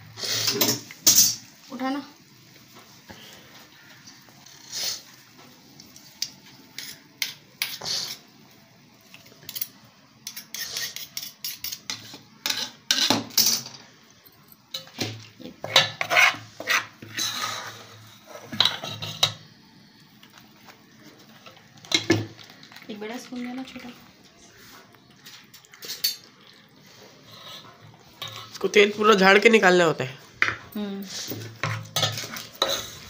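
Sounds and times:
spoon scraping metal pot: 0:09.5 - 0:13.6, 0:15.6 - 0:19.4, 0:27.2 - 0:28.9, 0:31.2 - 0:33.0.

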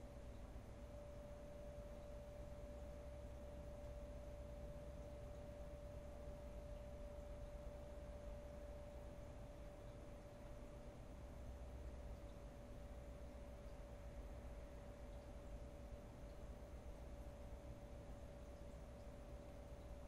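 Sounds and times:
faint steady tone: 0:00.0 - 0:20.0.

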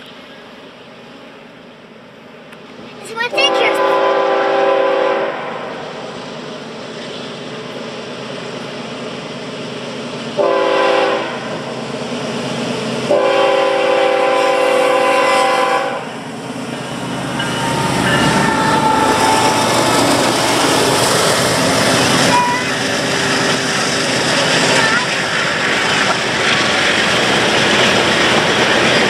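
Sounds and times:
train rumbling past on rails: 0:00.0 - 0:29.0
train air horn blasts: 0:03.5 - 0:05.7, 0:10.4 - 0:11.5, 0:13.1 - 0:16.0.

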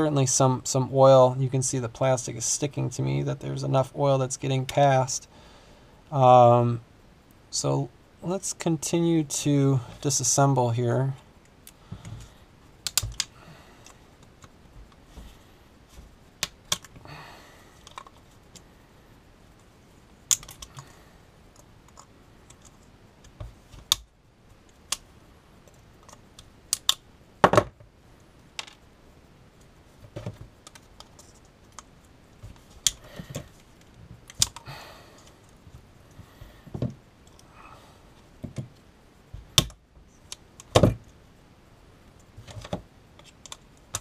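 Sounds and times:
pliers snipping and prying parts: 0:26.7 - 0:27.0.

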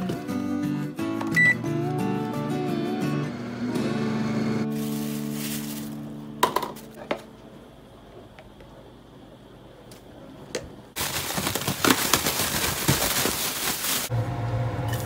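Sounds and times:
plastic bag crinkling: 0:04.7 - 0:06.1, 0:11.0 - 0:14.1.

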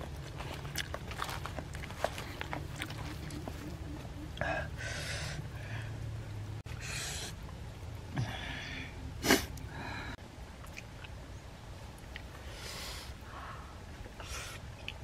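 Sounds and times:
wet squishing and rustling food: 0:00.0 - 0:03.7.

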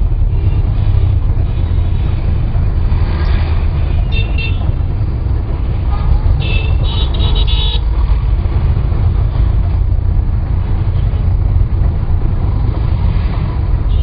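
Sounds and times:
traffic rumble: 0:00.0 - 0:14.0
car horn toot: 0:04.0 - 0:04.8, 0:06.4 - 0:07.8.

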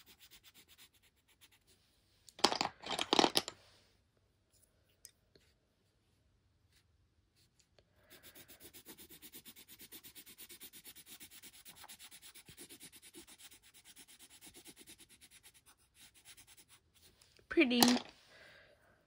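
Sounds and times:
colored pencil scratching on paper: 0:00.0 - 0:02.1, 0:06.7 - 0:17.3.

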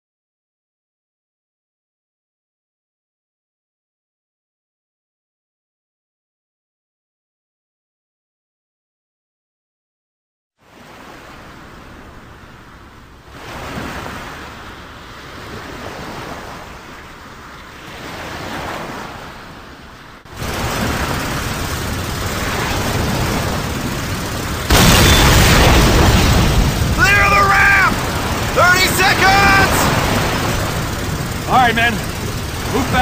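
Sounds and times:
sea surf rushing: 0:10.6 - 0:33.0.

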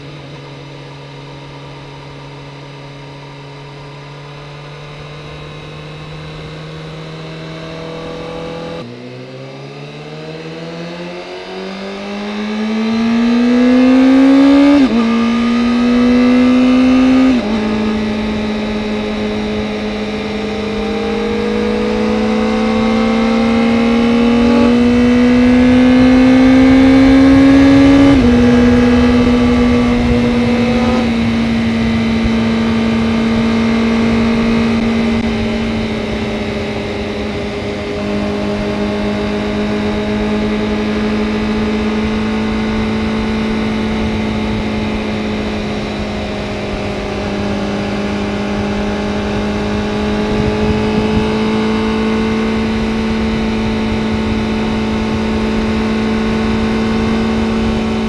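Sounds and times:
motorcycle engine accelerating: 0:00.0 - 0:58.0
wind noise: 0:13.4 - 0:58.0.

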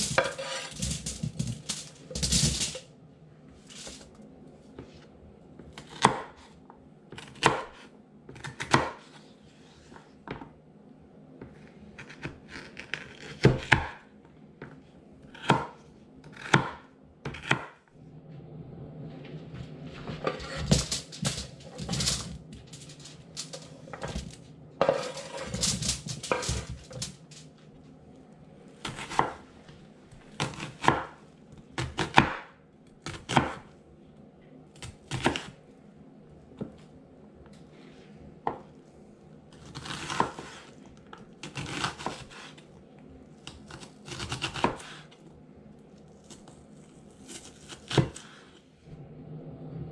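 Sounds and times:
scraping and crinkling of foil: 0:00.0 - 0:02.8, 0:20.4 - 0:27.5.

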